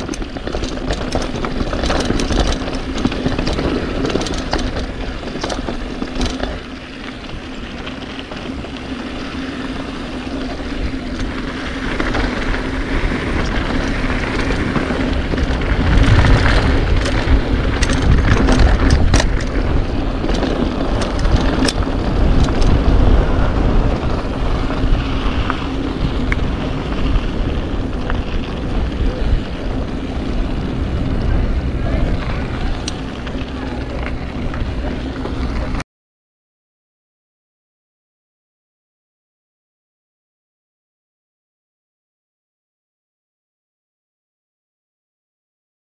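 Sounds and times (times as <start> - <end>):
bike clicks and clatters: 0.0 - 35.8
bike tyres on dirt: 0.0 - 35.8
wind rushing over microphone: 0.0 - 35.8.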